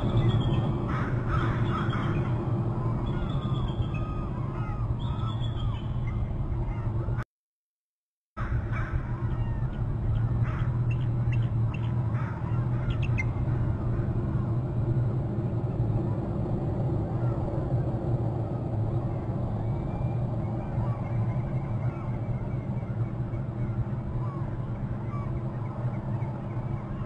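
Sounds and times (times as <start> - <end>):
steady low rumble: 0.0 - 7.2, 8.4 - 27.0
eagle piping calls: 8.8 - 13.6.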